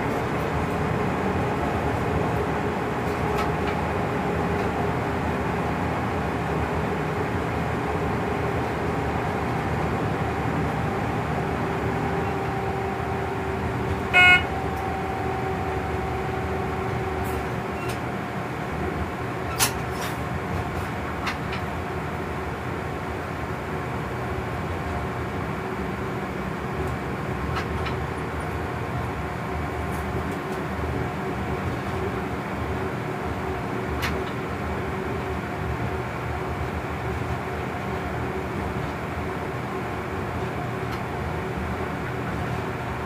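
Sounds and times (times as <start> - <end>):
locomotive rumble and motor whine: 0.0 - 43.0
train horn toot: 12.2 - 17.4.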